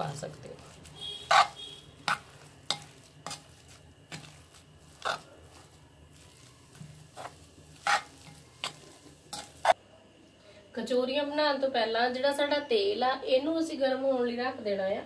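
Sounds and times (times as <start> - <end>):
hand squishing mashed potato: 0.0 - 9.8.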